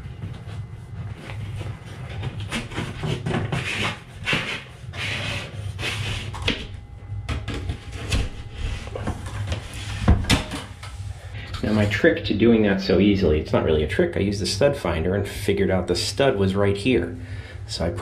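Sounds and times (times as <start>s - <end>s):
fish tape scraping in wall: 1.5s - 6.8s.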